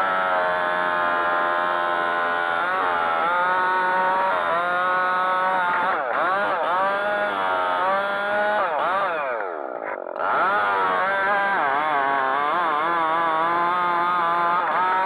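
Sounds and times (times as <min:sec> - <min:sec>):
chainsaw cutting wood: 0:00.0 - 0:15.0.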